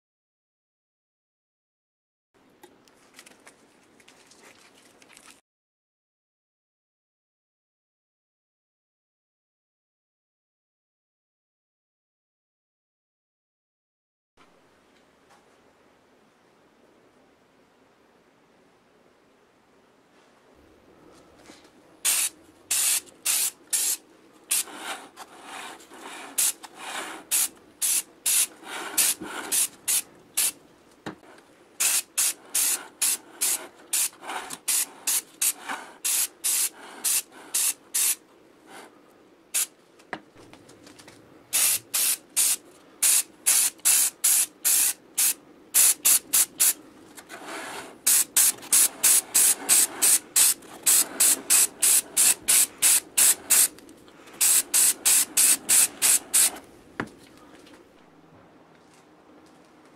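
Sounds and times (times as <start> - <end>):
spray paint hissing bursts: 22.0 - 30.6, 31.8 - 38.2, 41.5 - 46.8, 47.4 - 53.8, 54.4 - 56.6.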